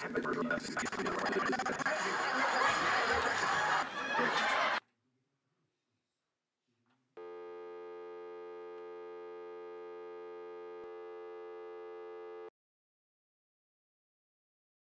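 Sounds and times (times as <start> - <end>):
electronic buzzing tone: 7.2 - 12.5.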